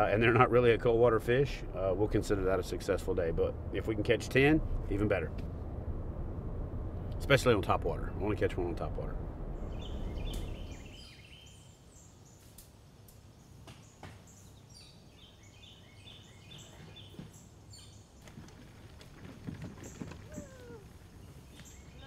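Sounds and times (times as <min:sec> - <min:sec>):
truck road rumble: 0:00.0 - 0:11.1
small birds chirping: 0:09.6 - 0:18.3, 0:19.8 - 0:22.0.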